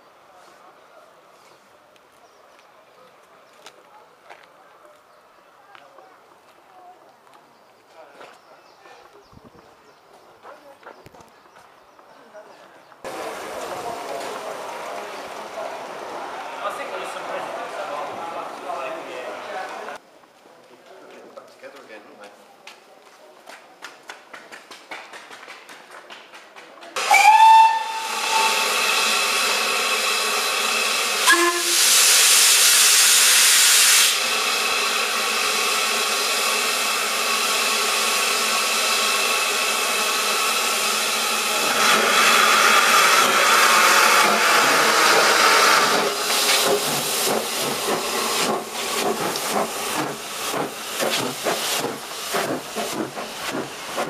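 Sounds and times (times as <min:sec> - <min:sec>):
steam hissing: 0:13.1 - 0:20.0, 0:27.0 - 0:54.0
steam locomotive whistle: 0:27.0 - 0:46.0
loud blast of steam: 0:27.0 - 0:54.0
locomotive exhaust chuffs: 0:34.0 - 0:54.0.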